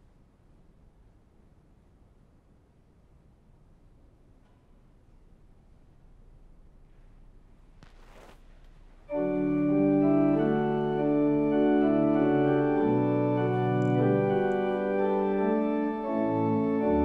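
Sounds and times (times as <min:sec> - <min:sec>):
church organ chords: 0:09.1 - 0:17.0.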